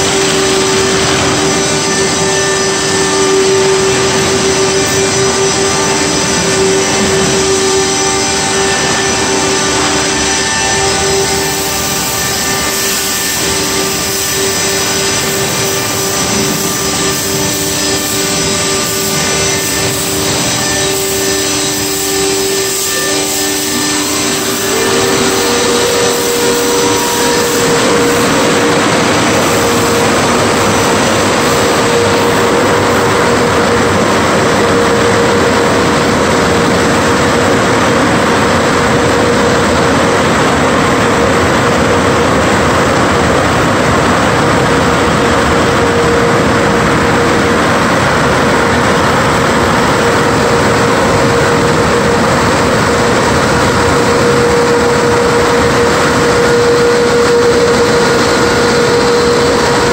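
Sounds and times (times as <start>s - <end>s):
car wash motors humming: 0.0s - 59.9s
high-pitched whine: 0.0s - 59.9s.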